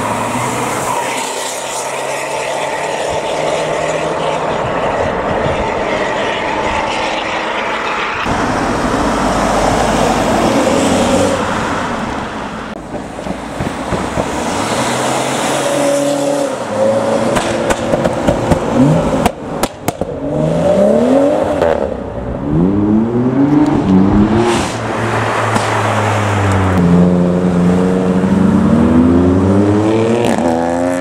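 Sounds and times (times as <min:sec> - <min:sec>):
car engines revving: 0:00.0 - 0:31.0
rushing noise of cars: 0:00.0 - 0:31.0
sharp cracks: 0:17.3 - 0:20.1.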